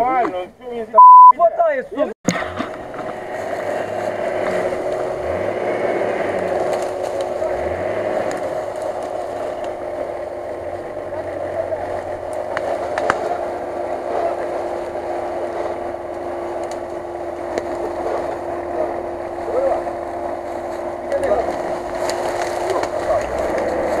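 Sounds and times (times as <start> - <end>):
off-road vehicle engine revving: 2.3 - 24.0.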